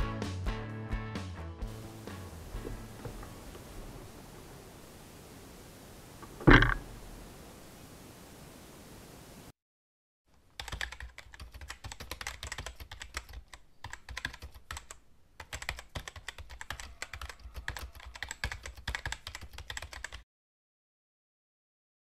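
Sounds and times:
keyboard typing clicks: 10.6 - 20.2.

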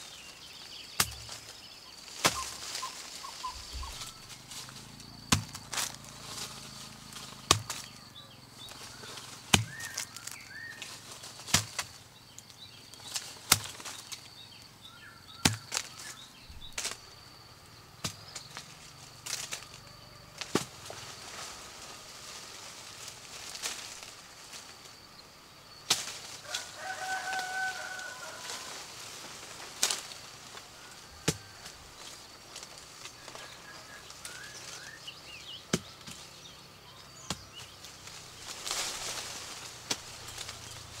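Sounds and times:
leaves and branches rustling: 0.0 - 41.0
fruit snapping off tree: 5.3 - 6.0, 15.4 - 16.1, 25.9 - 26.4.

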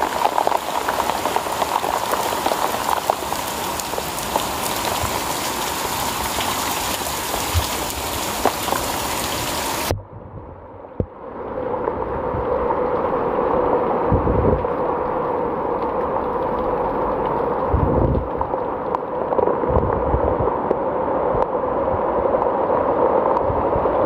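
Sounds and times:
heavy rain falling: 0.0 - 10.0, 10.9 - 24.0.

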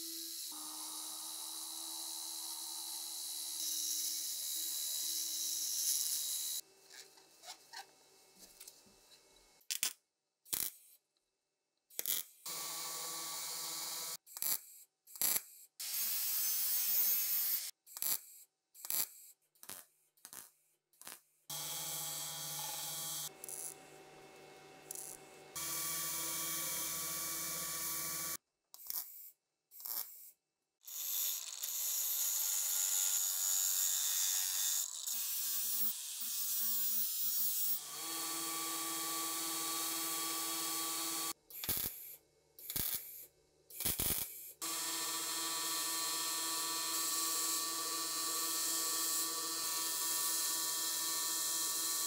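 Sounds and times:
belt grinder motor hum: 0.0 - 4.2, 21.5 - 28.4, 44.6 - 52.0
metallic workshop sounds: 19.7 - 29.1, 36.6 - 52.0.

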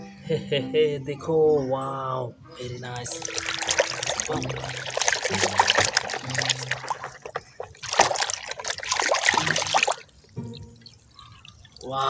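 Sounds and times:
water splashing in plastic basin: 2.9 - 12.0.

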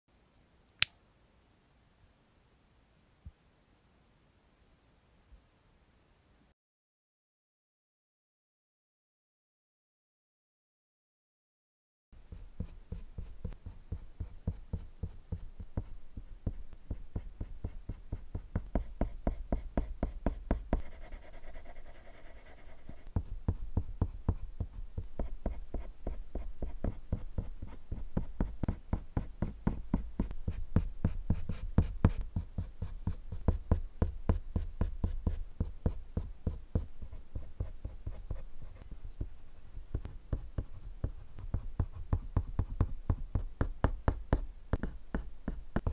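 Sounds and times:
colored pencil scratching on paper: 12.3 - 45.9.

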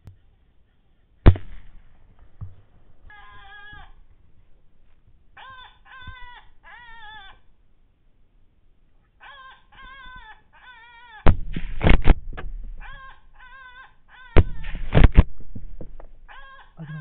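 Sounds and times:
short high wavering cries: 3.0 - 4.1, 5.4 - 7.5, 12.8 - 14.9, 16.2 - 17.0.

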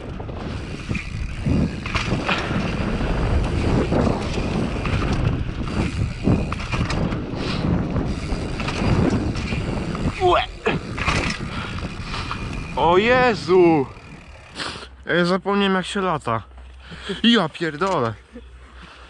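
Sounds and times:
bike rattling and knocking: 0.0 - 14.6
wind rushing over microphone: 0.0 - 14.6
tyres on dirt: 0.0 - 15.0.

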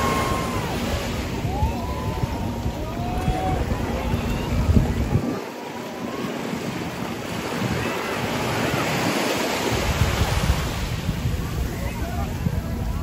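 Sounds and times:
small waves breaking on sand: 0.0 - 13.0
wind rumble on microphone: 0.0 - 13.0.

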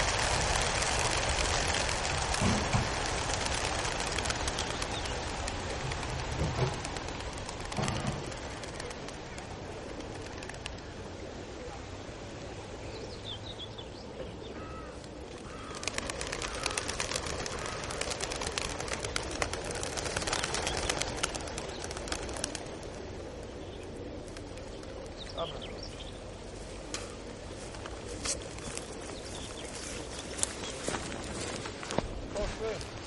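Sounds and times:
pigeon wings fluttering: 0.0 - 11.1, 15.0 - 25.7, 26.8 - 33.0
short bird calls: 12.9 - 18.2.

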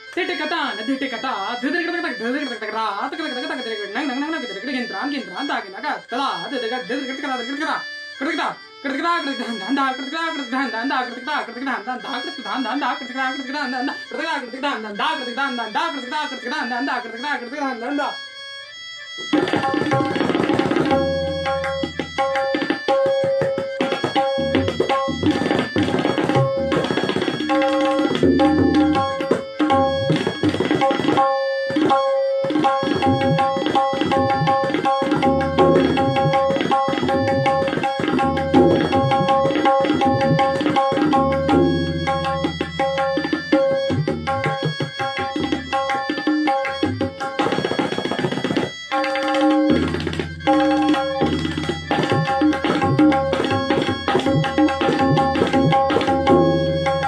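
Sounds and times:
tabla strokes: 19.2 - 57.0
deep tabla bass strokes: 19.4 - 22.5, 24.2 - 26.8, 33.0 - 44.7, 49.6 - 57.0.

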